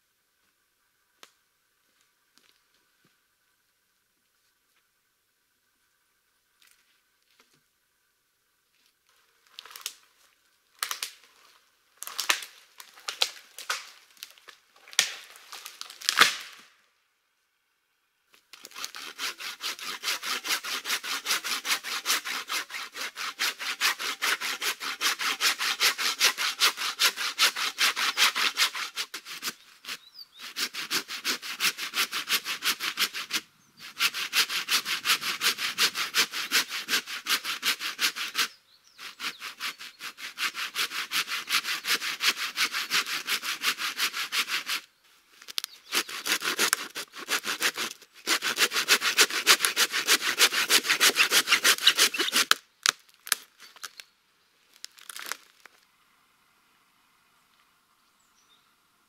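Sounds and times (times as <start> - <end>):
wood cracking and snapping: 10.8 - 11.3, 12.0 - 16.6, 51.9 - 54.0, 54.7 - 55.8
hand saw cutting wood: 18.6 - 44.9, 45.8 - 52.6.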